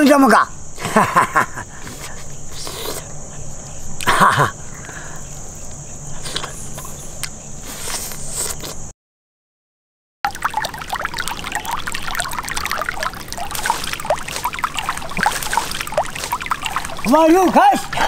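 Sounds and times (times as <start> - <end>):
insects chirring: 0.0 - 8.9, 10.3 - 18.0
wet chewing and lip-smacking: 6.2 - 8.8, 10.3 - 17.3.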